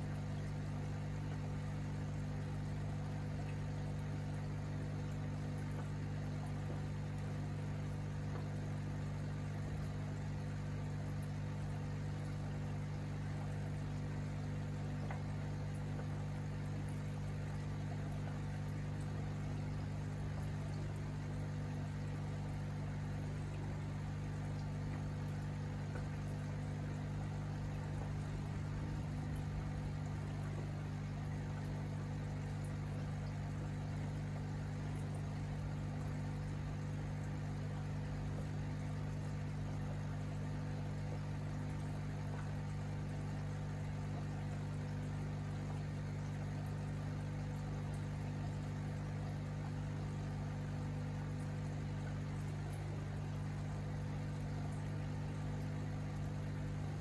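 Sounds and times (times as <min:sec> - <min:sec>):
water bubbling: 0:00.1 - 0:57.0
air pump humming: 0:20.4 - 0:36.6.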